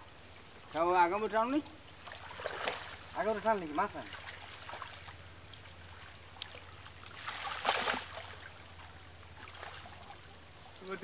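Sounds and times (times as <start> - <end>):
water trickling and dripping: 0.0 - 11.0
water splash: 2.0 - 3.2, 3.9 - 10.4.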